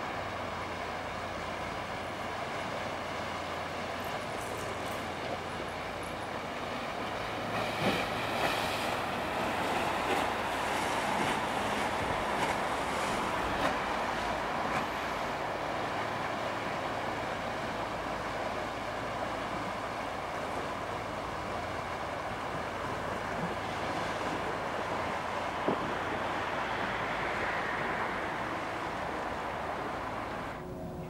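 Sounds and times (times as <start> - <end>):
ferry engine humming: 0.0 - 31.0
river water rushing: 0.0 - 31.0
wind: 0.0 - 31.0.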